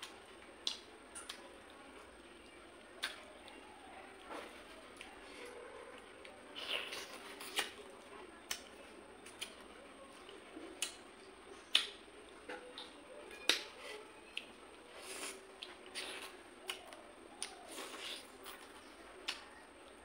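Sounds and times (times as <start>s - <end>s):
lip smacks: 2.9s - 3.6s, 11.7s - 12.0s, 12.7s - 19.5s
person chewing with mouth clicks: 6.2s - 7.8s, 11.7s - 12.0s, 14.3s - 19.5s.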